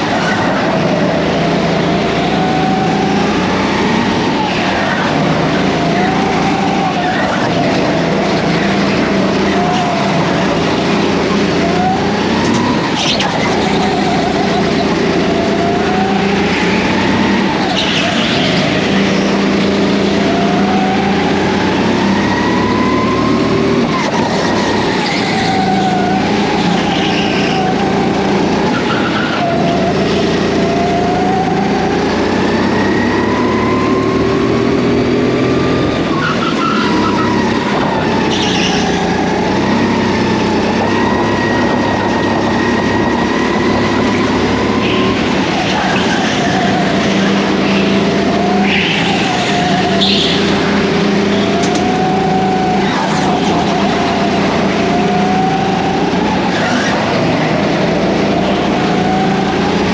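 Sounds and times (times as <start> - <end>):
go-kart engine revving: 0.0 - 59.9.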